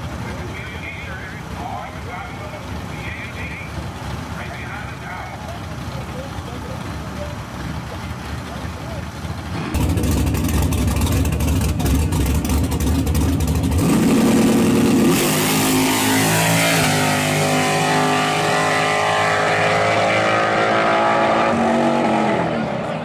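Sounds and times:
race truck engines revving: 0:00.0 - 0:23.0
engine popping: 0:03.8 - 0:15.2.

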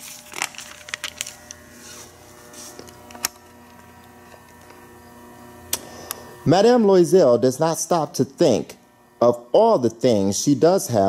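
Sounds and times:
paper pages rustling: 0:00.0 - 0:03.2
steady low hum: 0:00.0 - 0:11.0.

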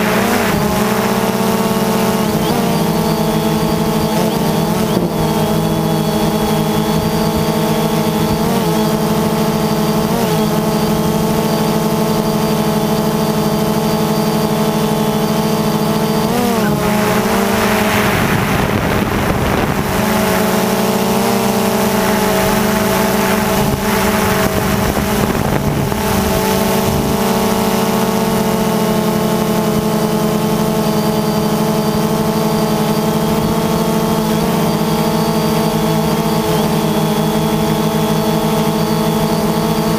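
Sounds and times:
rushing noise: 0:00.0 - 0:02.9, 0:15.9 - 0:27.0
drone propellers humming: 0:00.0 - 0:39.9.

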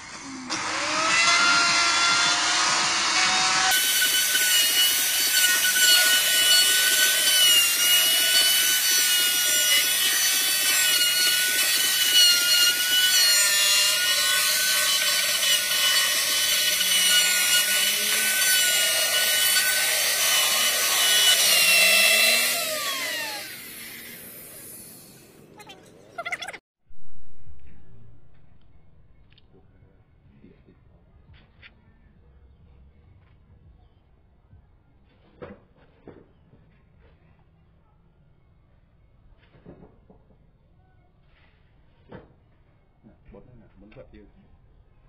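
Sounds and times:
electric router cutting wood: 0:00.0 - 0:25.2
router winding down: 0:00.0 - 0:25.2.

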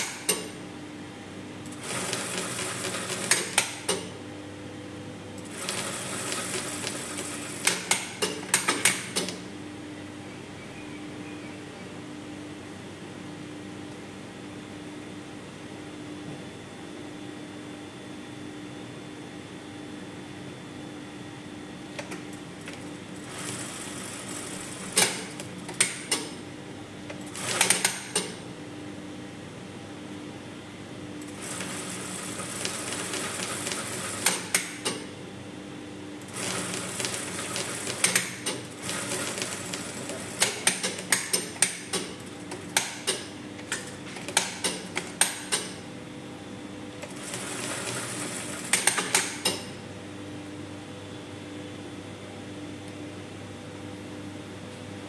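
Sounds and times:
sewing machine running: 0:01.7 - 0:04.1, 0:05.4 - 0:09.3, 0:22.6 - 0:26.2, 0:27.2 - 0:28.2, 0:31.2 - 0:34.8, 0:36.3 - 0:42.8, 0:47.0 - 0:49.4.

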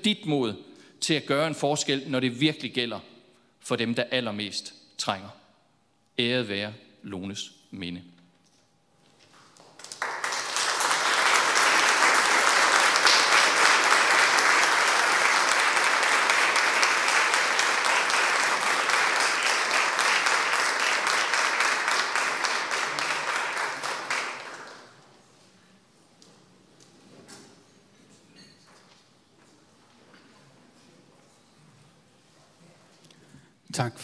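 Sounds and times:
audience applauding: 0:09.3 - 0:25.1.

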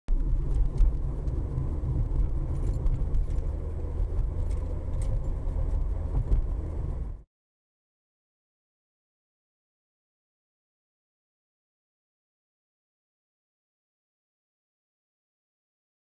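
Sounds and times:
faint clicks and rattles: 0:00.1 - 0:06.9
car road noise rumble: 0:00.1 - 0:07.3.

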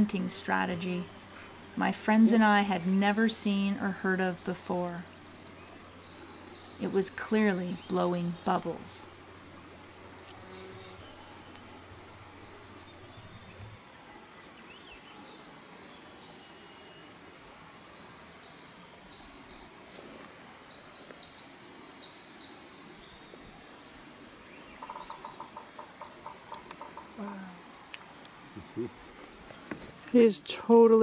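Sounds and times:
faint outdoor ambience: 0:00.0 - 0:31.0.

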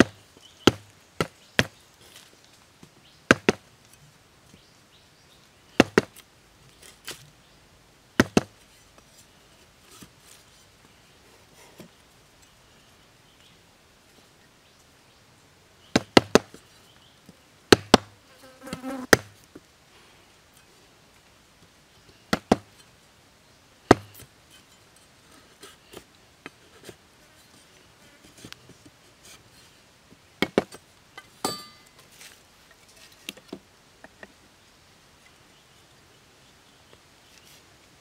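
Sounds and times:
machete chopping bamboo: 0:00.0 - 0:01.8, 0:03.3 - 0:03.6, 0:05.8 - 0:06.2, 0:08.2 - 0:08.6, 0:15.9 - 0:16.6, 0:17.7 - 0:18.1, 0:19.1 - 0:19.4, 0:22.3 - 0:22.7, 0:23.9 - 0:24.3, 0:30.4 - 0:30.7.

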